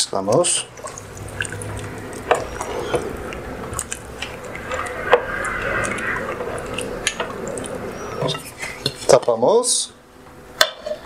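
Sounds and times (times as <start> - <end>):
soup sloshing and squelching: 0.6 - 9.1.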